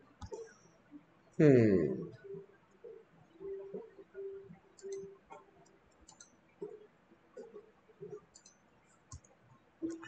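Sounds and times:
keyboard and mouse clicks: 0:00.2 - 0:00.5, 0:04.8 - 0:10.0.

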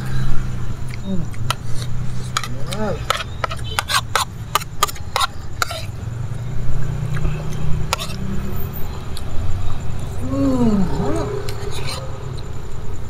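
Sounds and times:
spoon scraping a plate: 0:01.5 - 0:06.0, 0:07.9 - 0:08.3, 0:11.4 - 0:12.2.

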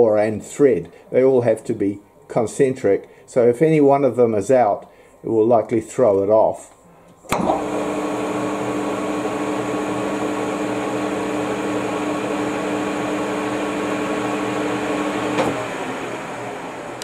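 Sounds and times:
lathe spindle humming: 0:07.3 - 0:17.0.

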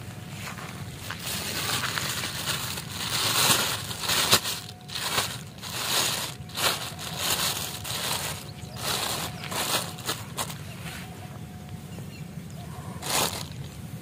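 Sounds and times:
plastic bag crinkling: 0:01.0 - 0:10.6, 0:13.0 - 0:13.7.

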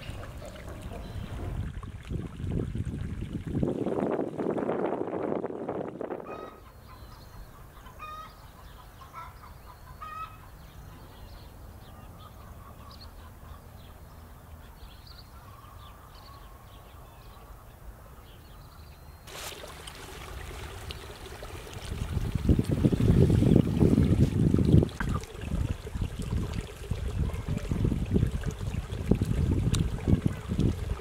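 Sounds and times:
birds calling: 0:00.0 - 0:01.7, 0:06.2 - 0:19.3.

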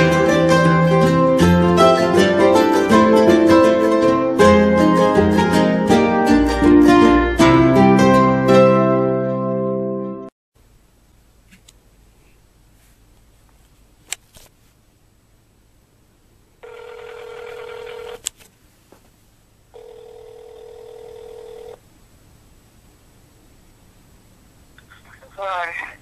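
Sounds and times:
phone ringback tone: 0:16.6 - 0:18.2, 0:19.7 - 0:21.8.

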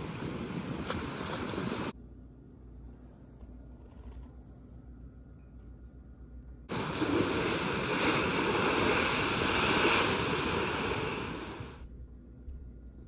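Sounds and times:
ocean surf breaking: 0:00.0 - 0:01.9, 0:06.7 - 0:11.8.

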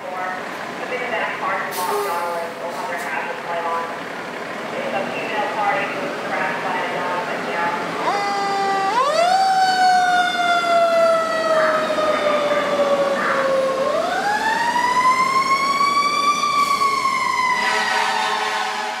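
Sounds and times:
fire engine siren wailing: 0:04.8 - 0:19.0.

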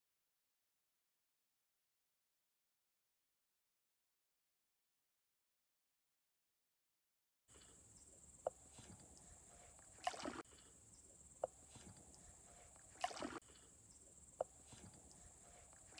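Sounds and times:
faint high hiss: 0:07.5 - 0:15.9
paddle splashing water: 0:08.4 - 0:10.7, 0:11.4 - 0:13.7, 0:14.4 - 0:15.9.

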